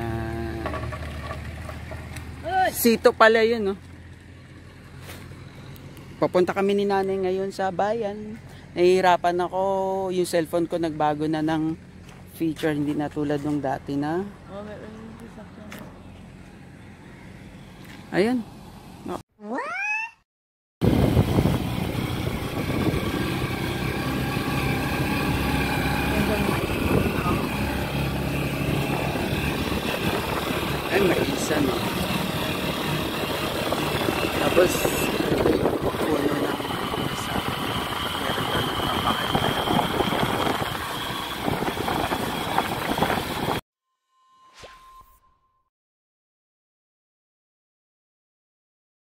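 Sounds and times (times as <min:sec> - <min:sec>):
motorcycle engine running: 0:00.0 - 0:18.4, 0:20.8 - 0:43.6
wind and road noise: 0:00.0 - 0:19.2, 0:20.8 - 0:43.6
thin high whine: 0:43.9 - 0:45.7.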